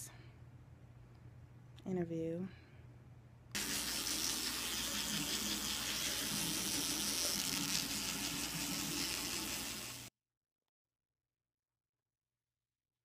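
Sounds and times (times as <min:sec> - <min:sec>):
tap water running into sink: 0:03.6 - 0:10.1.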